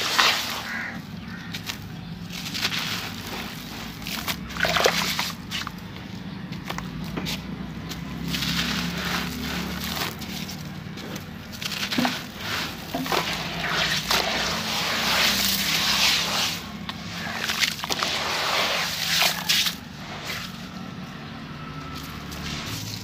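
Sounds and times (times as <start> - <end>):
hands swishing grit in water: 0.0 - 1.0, 2.3 - 5.7, 11.6 - 20.5
sand-cement block crunching: 0.0 - 20.8, 21.9 - 23.0
grit falling into water: 2.4 - 5.4, 11.6 - 19.8.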